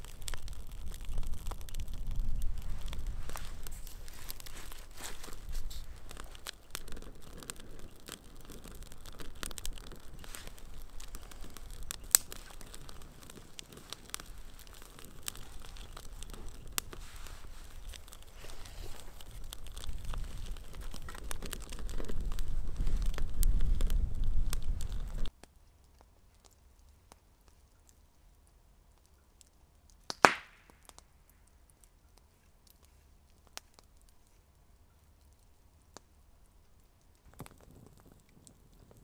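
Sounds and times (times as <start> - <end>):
twigs rustling: 0.0 - 25.3
twig fire crackling: 0.0 - 39.0.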